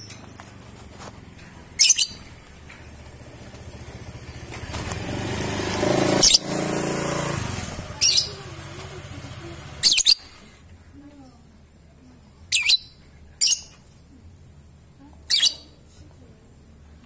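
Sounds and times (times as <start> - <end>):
motorcycle engine running: 0.4 - 10.0
bird giving shrill calls: 1.8 - 2.2, 9.8 - 10.4.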